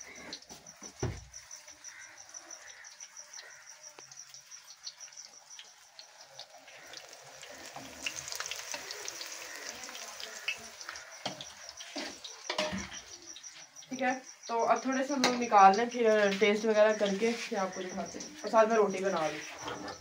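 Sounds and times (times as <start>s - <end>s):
fritters sizzling in hot oil: 0.0s - 20.0s.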